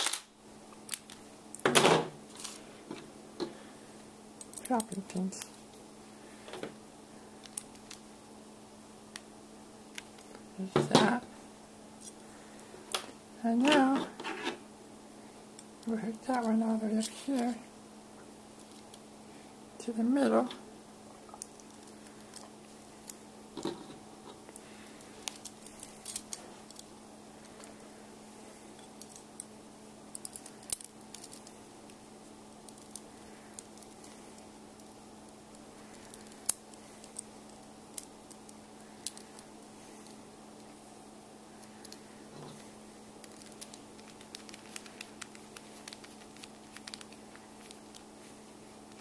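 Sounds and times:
metal parts clicking and clinking: 0.0 - 1.7, 25.2 - 26.9, 30.1 - 31.6
steady low hum: 0.0 - 49.0.

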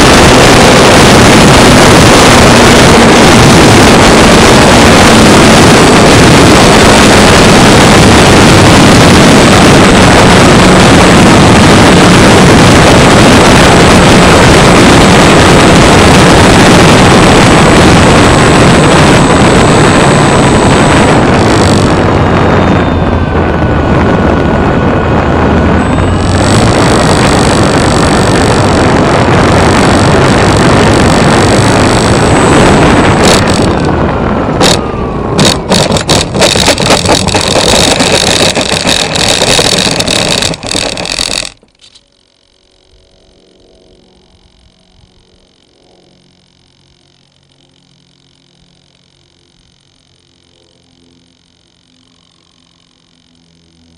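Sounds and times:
wind rush on microphone: 0.0 - 42.0
electric model plane motor whine: 0.0 - 53.9.

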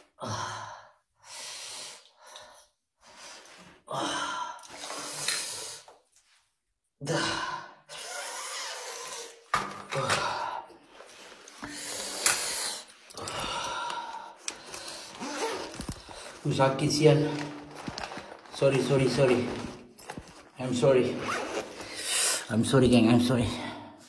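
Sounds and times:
man breathing hard: 0.0 - 6.0, 10.1 - 16.4.

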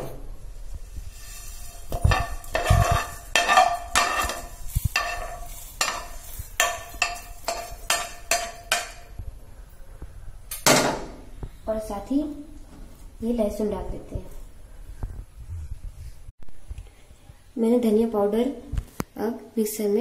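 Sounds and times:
metal spoon scraping and clinking: 1.1 - 9.1.

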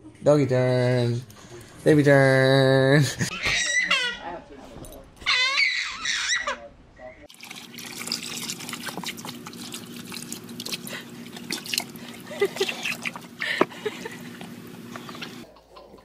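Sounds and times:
water splashing: 7.3 - 15.4.

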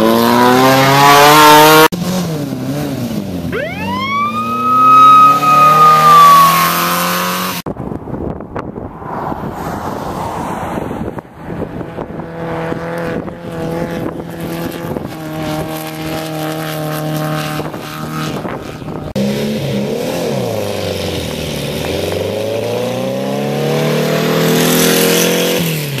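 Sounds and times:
car accelerating away: 0.0 - 7.6, 19.1 - 26.0
race car engine: 0.0 - 7.7, 8.8 - 26.0.

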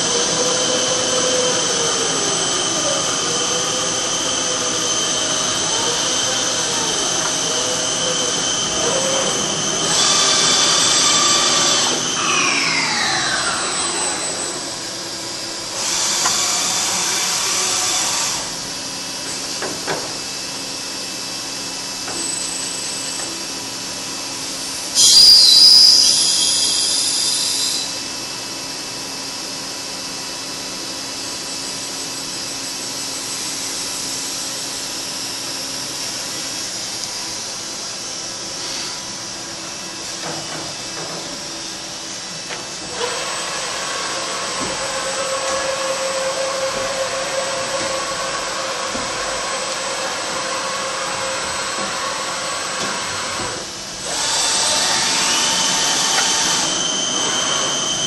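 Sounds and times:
milling machine drive whine: 0.0 - 19.4, 39.2 - 58.0.

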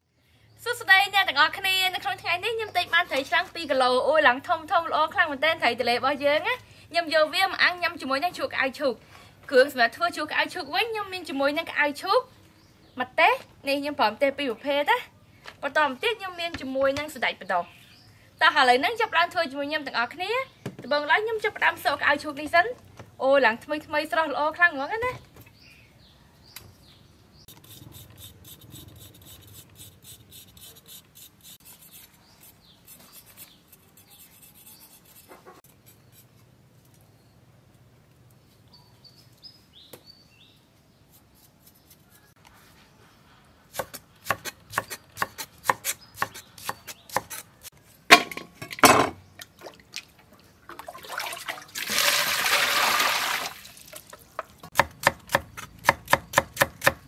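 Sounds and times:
knife scraping root skin: 27.5 - 36.5, 41.1 - 42.4, 43.7 - 47.8
cleaver chopping on wooden board: 54.7 - 57.0.

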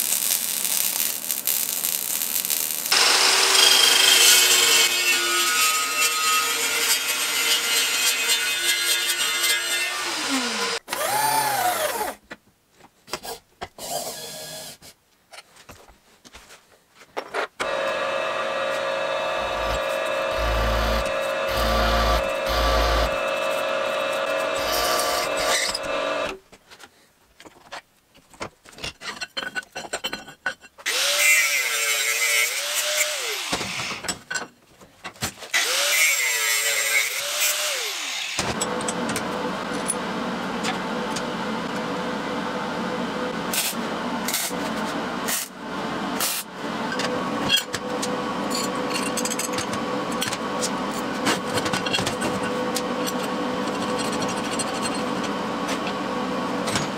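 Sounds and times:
drill press boring into steel: 2.9 - 4.9, 17.6 - 26.3
tool spinning up and down: 17.6 - 26.4
machine running steadily: 18.6 - 26.3.

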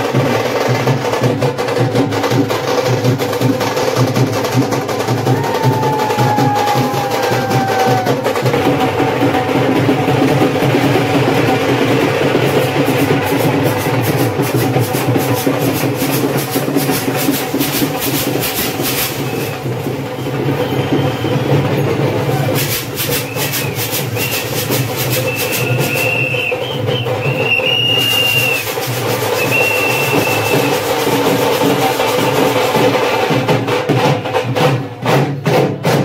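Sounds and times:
fast dhol drumming: 0.0 - 36.0.

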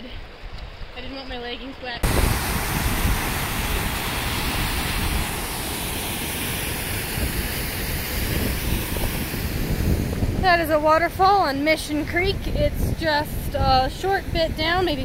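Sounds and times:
waterfall rushing: 2.0 - 11.9.

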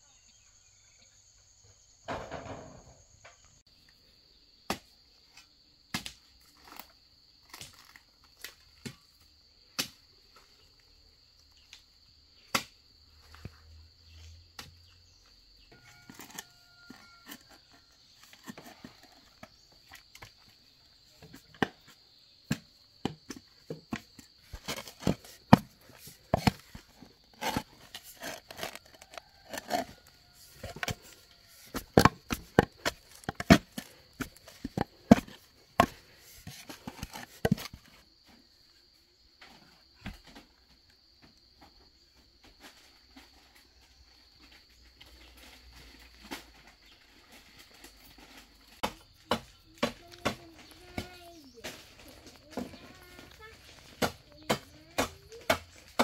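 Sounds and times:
knocks and cracks on bamboo: 4.7 - 9.0, 9.8 - 10.0, 12.4 - 12.8, 46.1 - 51.8, 53.8 - 56.0.

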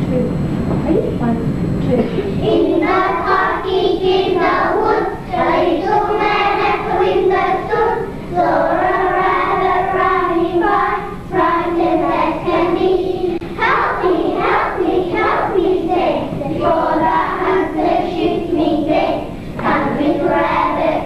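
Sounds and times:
children singing together: 2.4 - 21.0.

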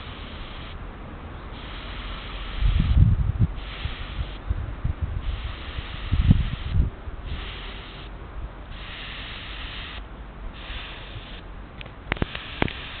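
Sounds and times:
garden sprayer hissing: 0.0 - 0.8, 1.5 - 3.0, 3.6 - 4.4, 5.2 - 8.1, 8.7 - 11.4, 12.1 - 13.0
sharp clicks: 11.8 - 12.8.

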